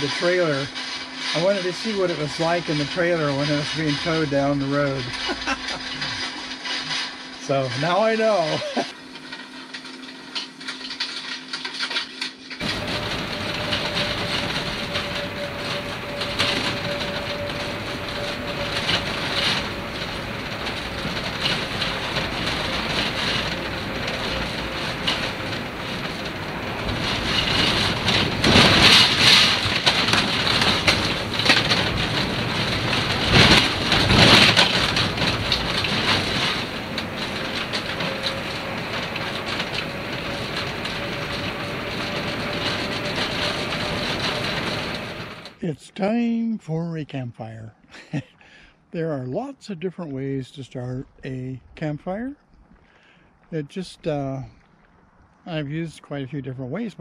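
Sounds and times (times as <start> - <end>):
road noise: 0.0 - 45.9
cabinets and contents rattling: 10.4 - 45.6.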